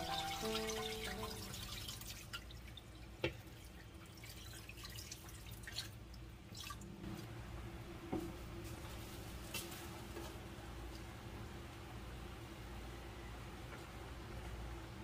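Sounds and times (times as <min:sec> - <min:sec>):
water dripping and trickling: 0:00.0 - 0:06.9.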